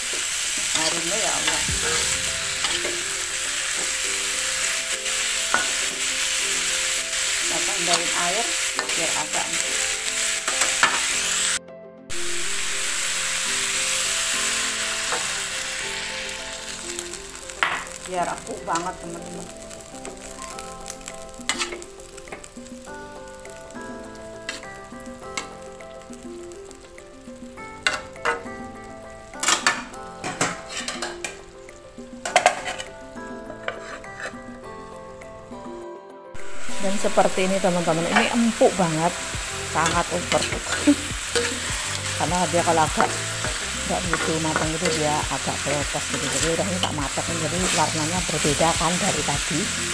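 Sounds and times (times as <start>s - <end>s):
vegetables sizzling in a pan: 0.0s - 35.3s, 36.4s - 49.9s
background music with held notes: 0.0s - 49.9s
metal spatula scraping a wok: 29.4s - 31.4s, 32.2s - 33.0s, 33.6s - 34.6s, 39.1s - 48.4s.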